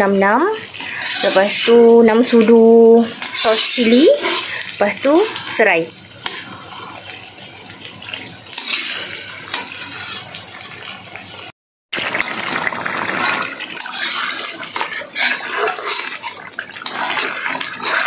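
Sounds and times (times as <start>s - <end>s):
sizzling: 0.0s - 18.0s
ladle stirring wet sauce: 0.1s - 11.4s, 12.2s - 18.0s
metal spoon scraping wok: 0.6s - 7.2s, 8.5s - 10.9s, 13.4s - 18.0s.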